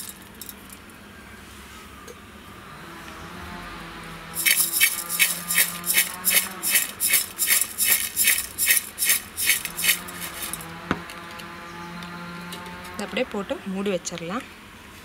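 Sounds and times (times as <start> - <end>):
pickle rattling in steel bowl: 4.4 - 10.6.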